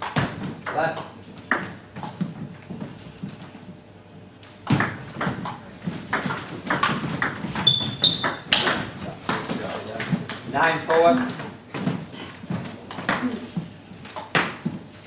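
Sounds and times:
table tennis ball hits: 0.0 - 2.8, 4.6 - 13.4, 14.1 - 14.8
brief high squeak: 7.6 - 8.4.

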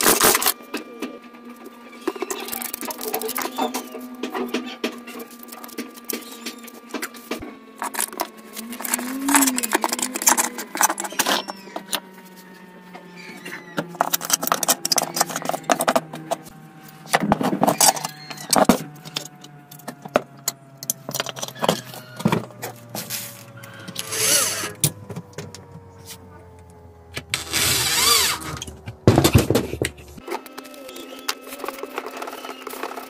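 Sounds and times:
noisy bursts: 0.0 - 30.4
metal engine parts clattering: 2.1 - 12.0, 13.9 - 23.0.

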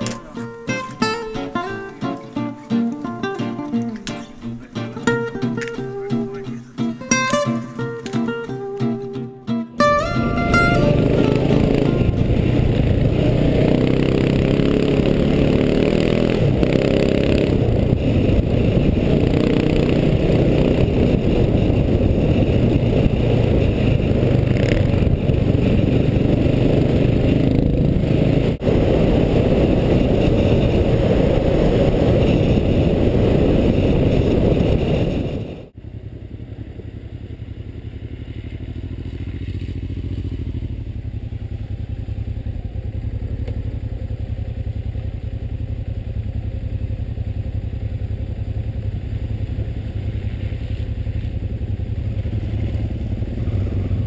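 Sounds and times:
motorcycle engines idling: 0.0 - 8.7, 9.8 - 54.0
motorcycle riding up: 0.0 - 54.0
wind noise: 9.8 - 35.8
motorcycle engine running: 9.8 - 54.0.

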